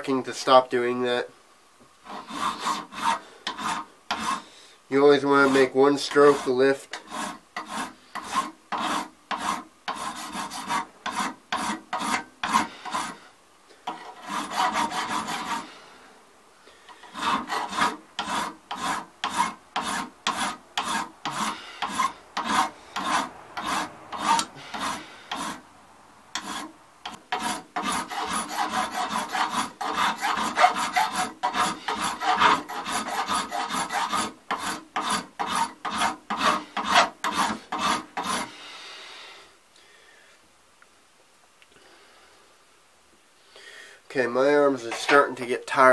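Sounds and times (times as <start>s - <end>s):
file rasping on brass: 2.0s - 4.5s, 5.1s - 13.3s, 13.9s - 15.8s, 16.9s - 25.6s, 26.4s - 38.6s, 44.8s - 45.4s.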